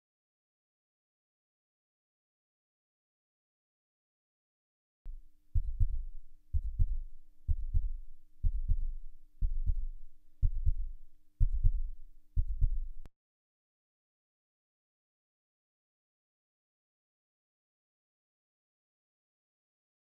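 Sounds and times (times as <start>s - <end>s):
faint steady hum: 5.1s - 13.1s
heartbeat double thump: 5.1s - 13.1s.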